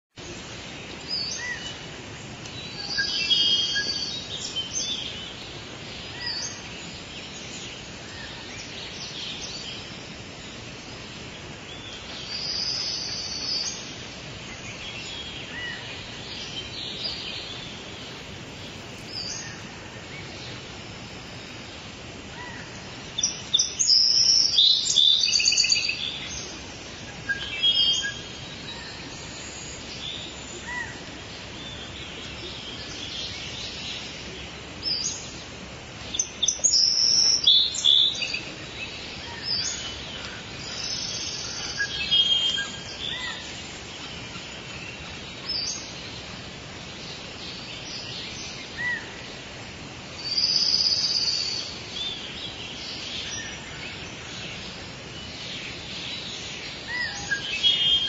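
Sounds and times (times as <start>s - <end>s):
steady outdoor hiss: 0.0s - 58.0s
birds chirping and singing: 11.5s - 21.7s, 22.4s - 49.4s, 50.2s - 58.0s.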